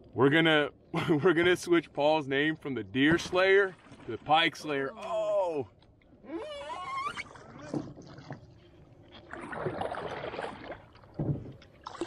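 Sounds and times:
water splashing against canoe: 3.0 - 12.0
low thump: 11.2 - 11.6.

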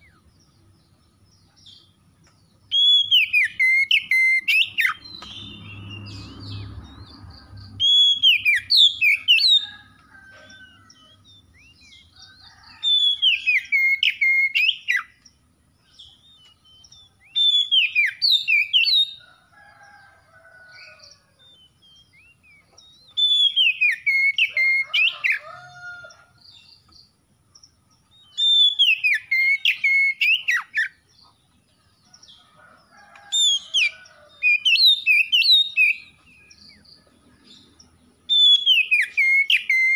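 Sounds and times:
bird singing whistled notes: 2.7 - 6.6, 7.6 - 9.6, 10.9 - 15.3, 15.9 - 19.2, 21.6 - 24.9, 28.1 - 31.0, 38.3 - 39.9.

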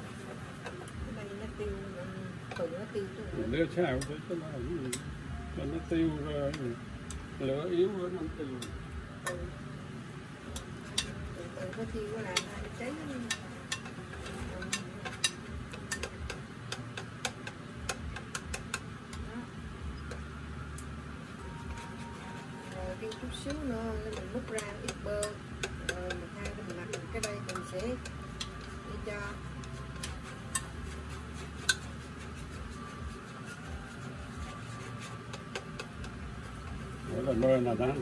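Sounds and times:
steady low hum: 0.0 - 38.0
utensil scraping a pan: 10.8 - 17.5, 21.4 - 38.0.

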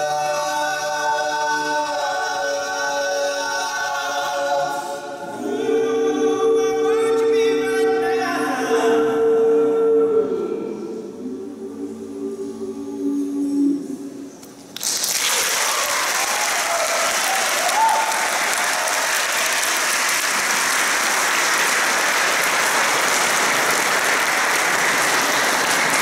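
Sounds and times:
a cappella group chord: 0.0 - 14.4
audience applause: 14.8 - 26.0.

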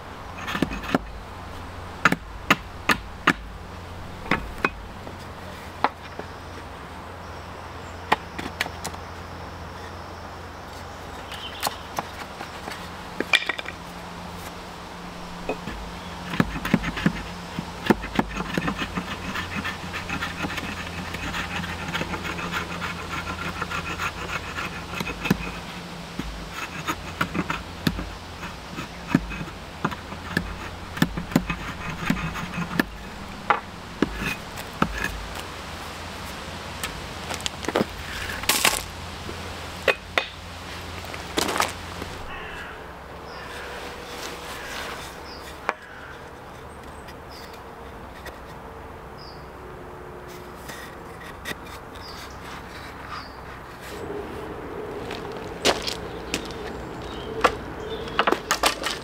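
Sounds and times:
axe splitting sticks on block: 2.0 - 3.5, 11.3 - 13.8, 15.4 - 35.5, 39.8 - 40.4, 58.2 - 59.0.

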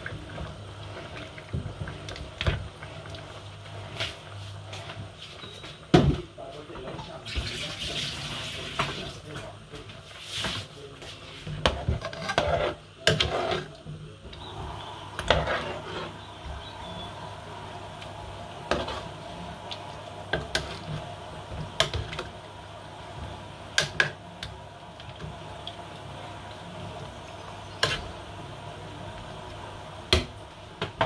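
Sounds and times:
steady low hum: 11.3 - 31.0
metal spoon scraping metal pot: 11.9 - 13.7, 15.2 - 16.2.

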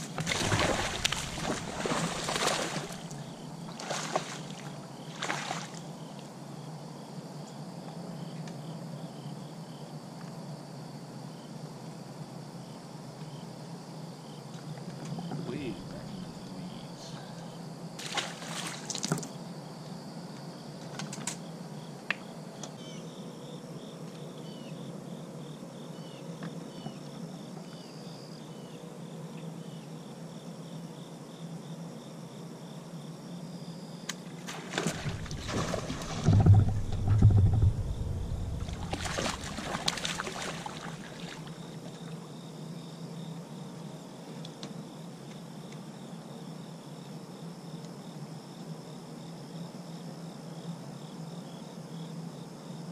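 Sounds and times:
water splashing: 0.0 - 5.8, 18.0 - 19.1, 34.4 - 41.7
crickets chirping: 0.0 - 52.9
deep thumps: 34.6 - 41.0.

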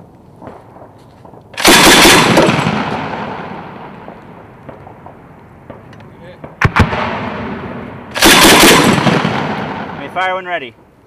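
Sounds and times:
grenade launcher firing: 1.6 - 3.8, 6.6 - 10.0.

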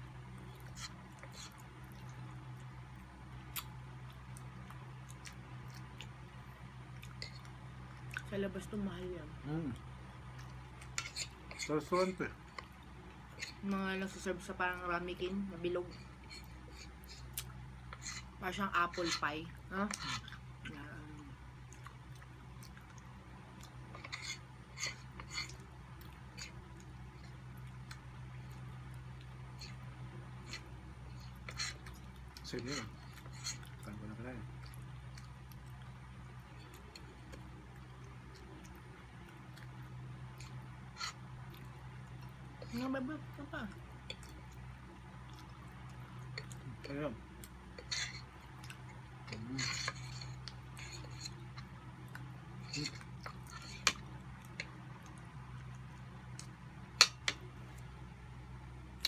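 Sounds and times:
steady low hum: 0.0 - 59.0
chewing and eating: 0.1 - 59.0
forks scraping on plate: 11.0 - 12.2, 18.9 - 19.3, 49.3 - 51.4.

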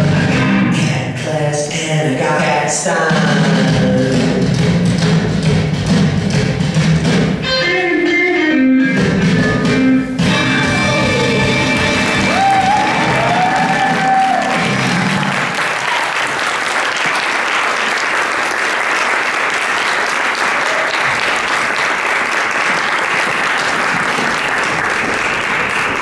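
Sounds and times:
music: 0.0 - 1.2, 2.3 - 15.5
audience applauding: 10.7 - 26.0.

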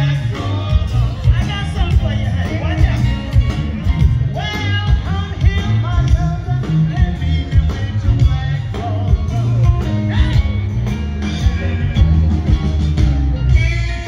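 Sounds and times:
electric guitar: 0.0 - 14.0
live blues band playing: 0.0 - 14.0.

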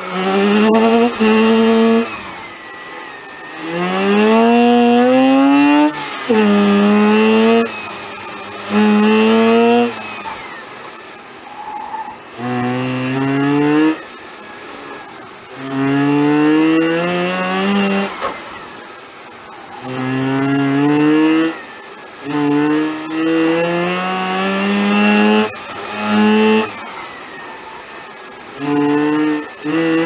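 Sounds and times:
rotary engine revving: 0.0 - 18.9, 19.5 - 30.0.

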